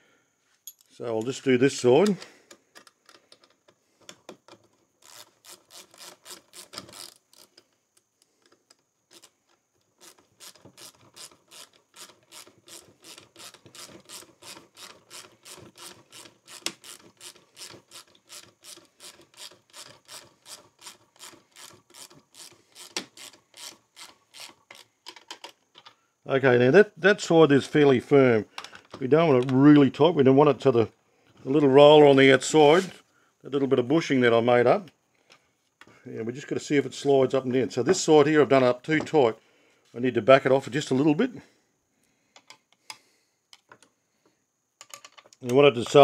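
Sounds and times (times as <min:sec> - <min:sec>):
ratchet clicking: 0:05.0 - 0:07.6, 0:10.0 - 0:24.9.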